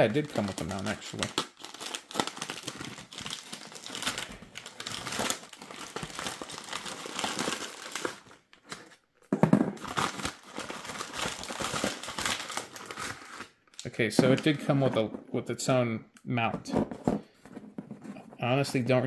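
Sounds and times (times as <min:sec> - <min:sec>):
paper bag crinkling and tearing: 0:00.0 - 0:08.3, 0:09.9 - 0:13.5.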